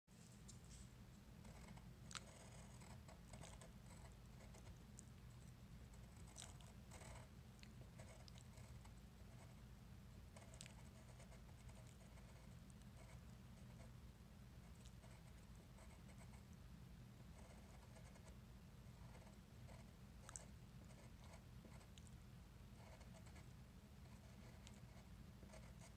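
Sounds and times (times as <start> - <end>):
steady low hum: 0.2 - 25.9
pencil scratching on paper: 1.4 - 4.7, 6.0 - 7.3, 8.0 - 9.6, 10.4 - 13.9, 22.8 - 23.5, 24.1 - 25.9.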